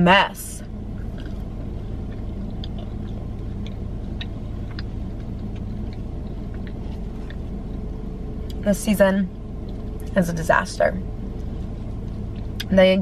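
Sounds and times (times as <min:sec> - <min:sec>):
car running hum inside cabin: 0:00.0 - 0:13.0.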